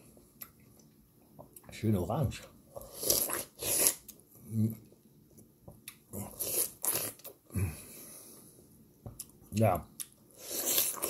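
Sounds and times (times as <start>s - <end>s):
person chewing juicy melon: 2.8s - 4.2s, 5.7s - 7.7s, 9.1s - 11.0s.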